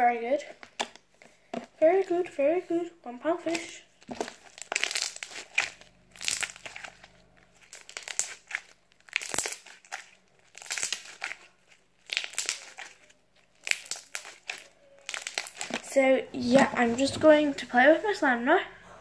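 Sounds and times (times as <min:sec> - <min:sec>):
slime crunching and crackling: 0:03.4 - 0:18.2.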